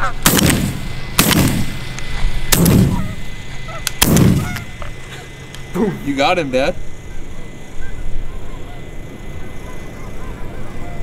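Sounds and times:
echoing shotgun shots: 0:00.2 - 0:01.9, 0:02.5 - 0:03.2, 0:03.9 - 0:04.6
faint goose honks: 0:02.9 - 0:04.9, 0:07.0 - 0:11.0.

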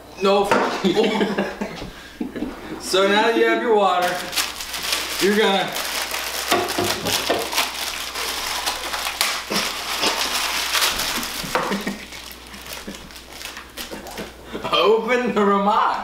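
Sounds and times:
dry noodles crunching: 0:04.0 - 0:14.4
plastic packet tearing and crinkling: 0:04.0 - 0:14.4.

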